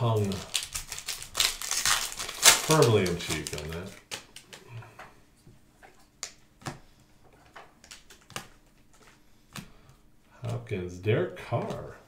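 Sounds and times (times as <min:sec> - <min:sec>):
trading cards clicking and tapping: 0:06.2 - 0:10.7.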